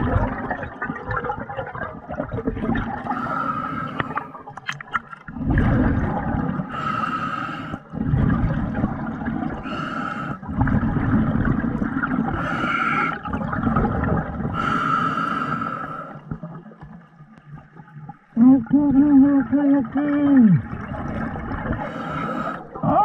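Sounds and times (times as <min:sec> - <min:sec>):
rumble of exhaled bubbles: 0:00.0 - 0:07.0, 0:07.7 - 0:23.0.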